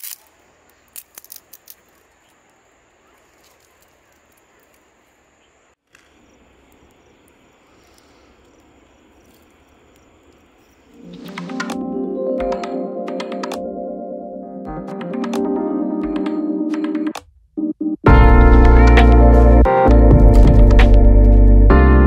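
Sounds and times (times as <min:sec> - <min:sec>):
high insect drone: 0:00.0 - 0:12.1.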